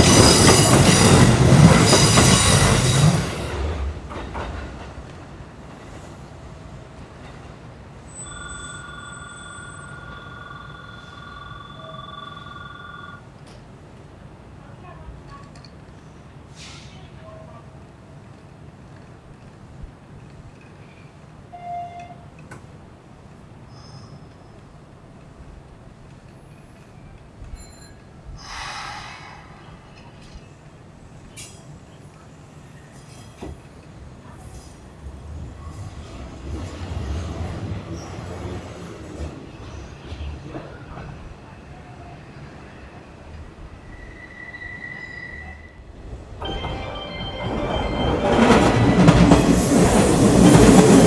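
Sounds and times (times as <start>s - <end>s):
electric platform bell ringing: 8.1s - 13.2s, 46.4s - 49.6s
train compressed air hiss: 16.4s - 17.2s, 28.3s - 30.0s.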